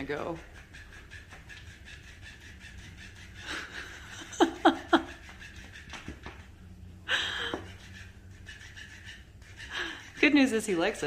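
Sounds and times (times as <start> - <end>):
person laughing: 3.4 - 5.4, 7.1 - 7.8.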